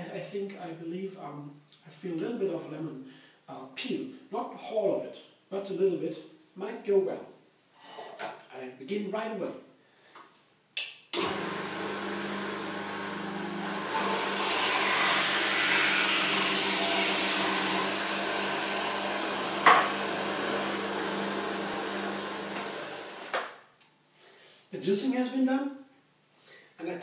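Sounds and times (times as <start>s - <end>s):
electric juicer motor hum: 11.2s - 23.4s
produce grinding in juicer: 11.2s - 23.4s.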